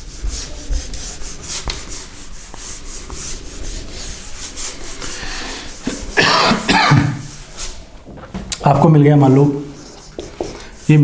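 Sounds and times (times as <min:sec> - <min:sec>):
scratchy writing strokes on board: 0:00.0 - 0:06.4, 0:09.8 - 0:11.0.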